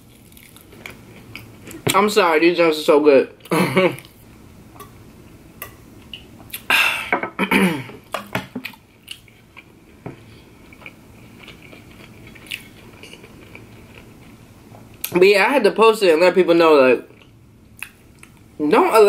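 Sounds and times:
person chewing food: 0:00.0 - 0:01.9, 0:08.6 - 0:15.1.

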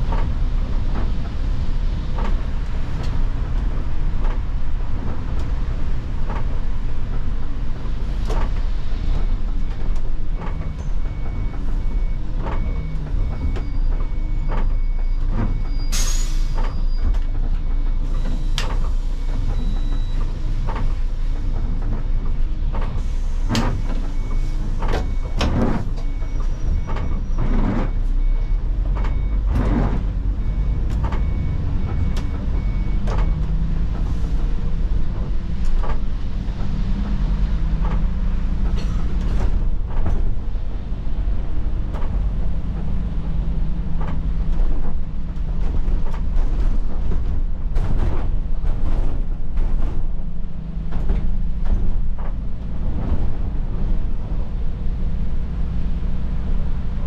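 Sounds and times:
bus engine and road rumble: 0:00.0 - 0:57.0
air brake hiss: 0:15.9 - 0:16.7, 0:23.0 - 0:23.6
interior rattles and knocks: 0:16.6 - 0:57.0.

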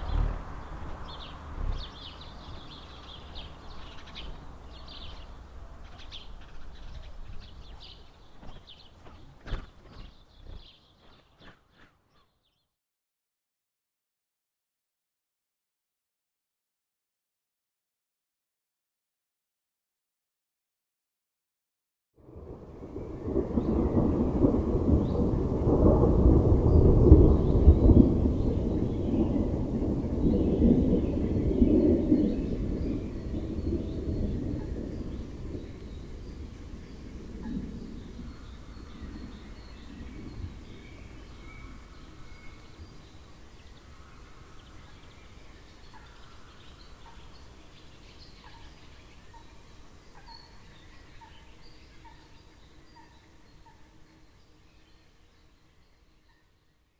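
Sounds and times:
steady low rumble: 0:00.0 - 0:05.8
birds chirping: 0:00.0 - 0:12.8, 0:26.6 - 0:56.6.

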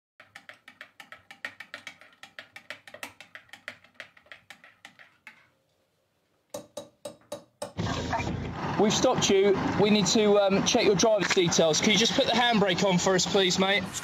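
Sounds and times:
fast sharp clicks: 0:00.2 - 0:05.4.

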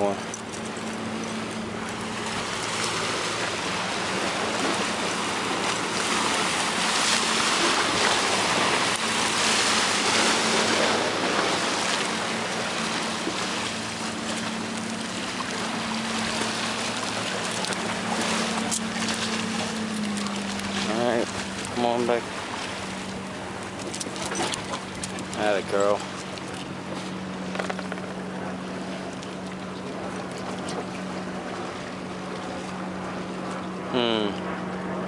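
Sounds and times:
low engine hum: 0:00.0 - 0:35.0
wind: 0:00.0 - 0:35.0.

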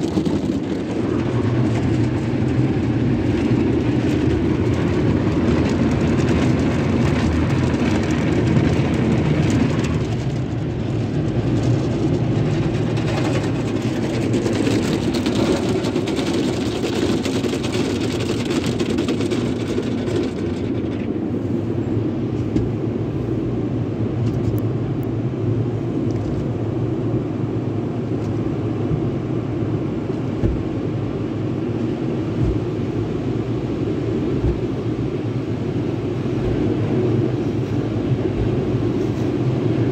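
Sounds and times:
brushes washing over car: 0:00.0 - 0:20.7
rumble of wash machinery: 0:00.0 - 0:39.9.

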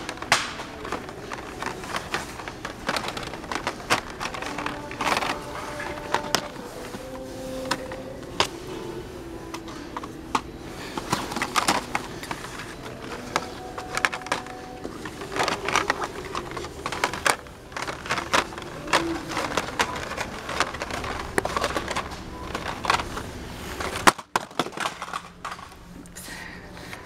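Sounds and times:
plastic crinkling rustles: 0:00.0 - 0:26.2
plastic packaging clicks and clacks: 0:00.0 - 0:26.2.

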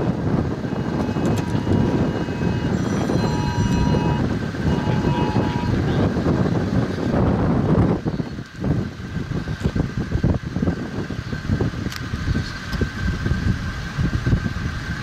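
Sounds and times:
wind buffeting microphone: 0:00.0 - 0:15.0
faint held tones: 0:00.8 - 0:05.8.

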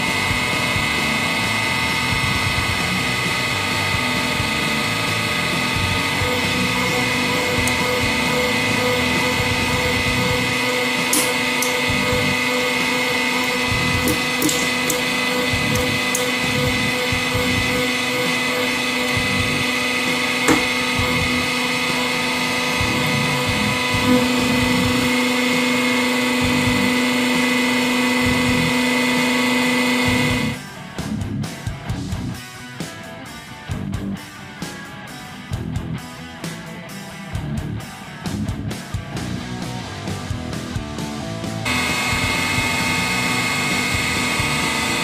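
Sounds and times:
hydraulic press motor whine: 0:00.0 - 0:30.6, 0:41.6 - 0:45.0.

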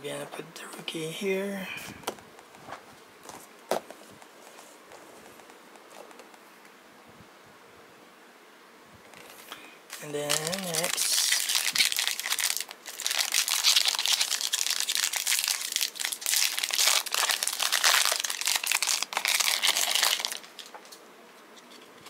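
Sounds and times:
card pack wrapper crinkling: 0:09.2 - 0:21.0.

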